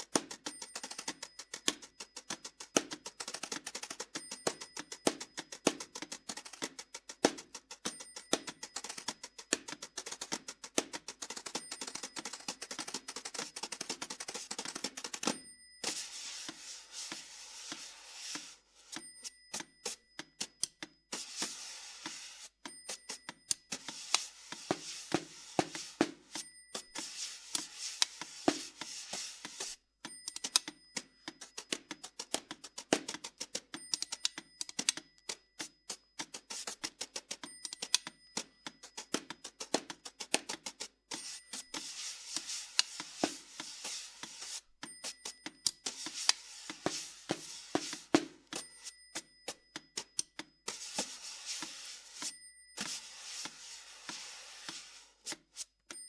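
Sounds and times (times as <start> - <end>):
sticks tapping snare drum: 0.0 - 15.5, 16.4 - 35.0, 35.6 - 56.0
damped snare drum strokes: 14.3 - 20.0, 21.1 - 29.8, 41.1 - 49.0, 50.7 - 55.8
high ringing tone: 15.3 - 20.2, 21.2 - 28.0, 50.8 - 54.8
rubbing scraping on drum: 15.8 - 18.6, 26.9 - 29.8, 50.7 - 55.3
scraping rubs on drum: 15.8 - 18.8, 21.2 - 22.5, 23.8 - 26.3, 27.0 - 29.8, 41.2 - 44.7, 45.9 - 48.2, 50.7 - 55.6.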